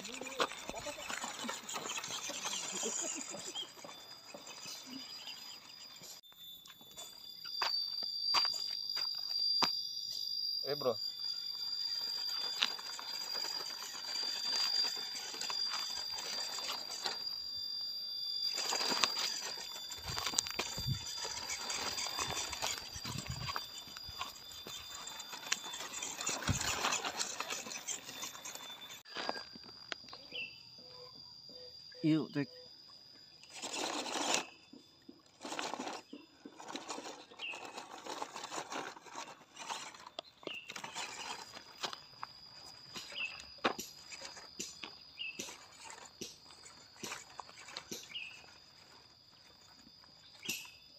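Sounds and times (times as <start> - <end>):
tyres crunching over gravel: 0.0 - 6.2, 11.8 - 17.4, 18.4 - 30.0, 35.3 - 50.5
high insect drone: 0.0 - 50.9.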